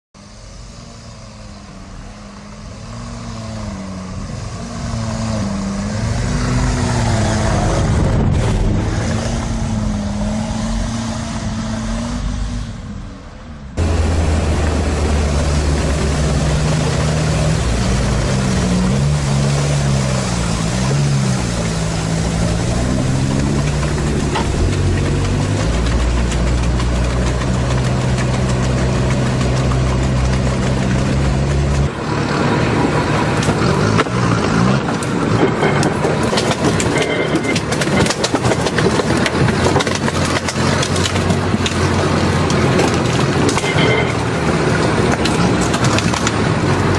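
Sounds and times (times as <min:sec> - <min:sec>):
diesel engine revving: 0:00.2 - 0:46.9
tyres knocking over logs and branches: 0:14.6 - 0:46.9.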